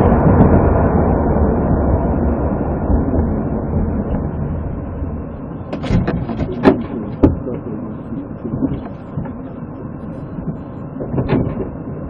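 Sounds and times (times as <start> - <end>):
steady low rumble: 0.0 - 12.0
sharp clicks and knocks: 5.7 - 7.8, 10.4 - 11.8.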